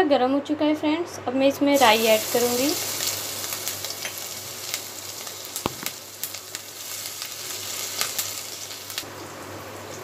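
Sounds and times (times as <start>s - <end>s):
seeds sizzling and popping in oil: 1.8s - 9.2s.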